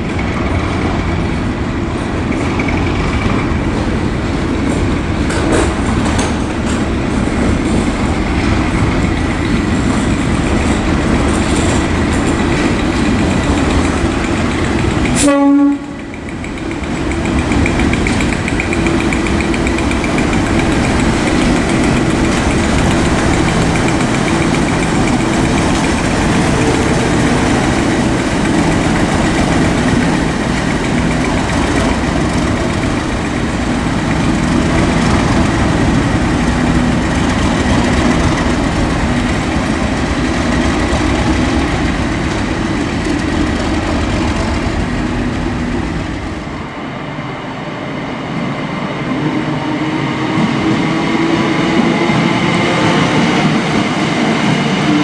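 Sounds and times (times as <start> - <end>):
diesel locomotive engine passing: 0.0 - 55.0
train horn blast: 15.2 - 16.1.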